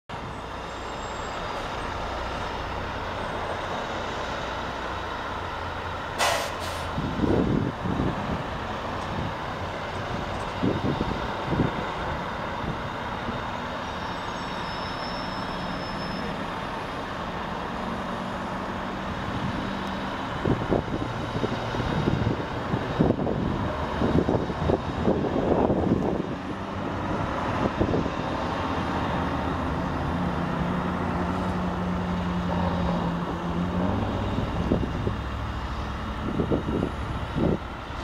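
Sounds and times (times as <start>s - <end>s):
distant diesel engines rumbling: 0.1s - 38.0s
air-brake hisses: 6.2s - 6.9s.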